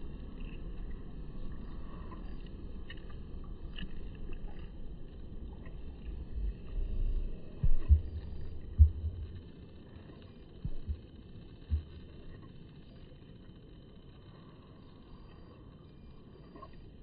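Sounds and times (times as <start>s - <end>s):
low rumble: 0.0s - 12.6s.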